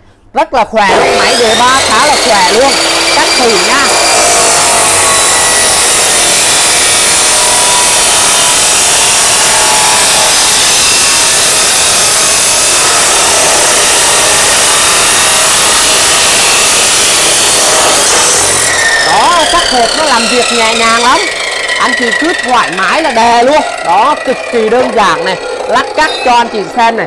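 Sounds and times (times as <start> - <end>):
cut-off saw grinding through steel: 0.9 - 27.0.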